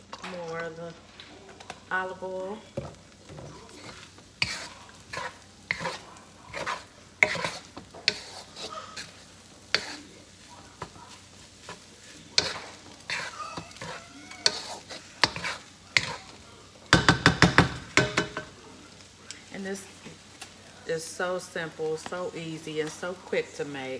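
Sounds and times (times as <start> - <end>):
oil sizzling: 0.0 - 23.9
wooden spoon scraping a wok: 2.6 - 16.5.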